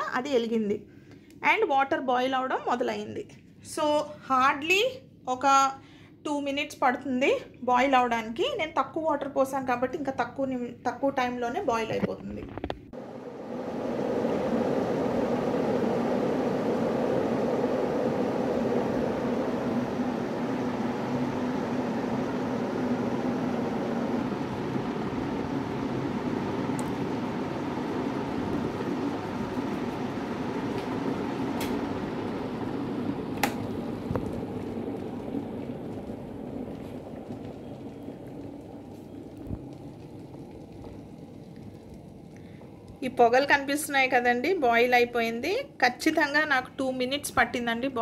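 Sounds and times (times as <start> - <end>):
electric kettle heating water: 7.0 - 48.0
kettle switch click: 33.4 - 33.7.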